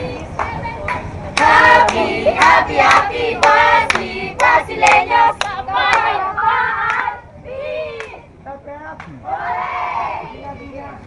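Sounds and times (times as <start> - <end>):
crowd singing in unison: 0.0 - 8.3, 9.1 - 10.5
hand clapping: 0.4 - 6.1.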